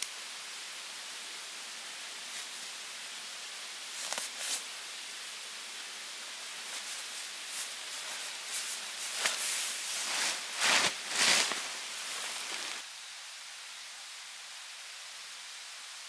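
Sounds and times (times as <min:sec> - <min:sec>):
mountain stream rushing: 0:00.0 - 0:12.9
tarp rustling: 0:06.6 - 0:12.8
tarp flapping: 0:06.7 - 0:12.8.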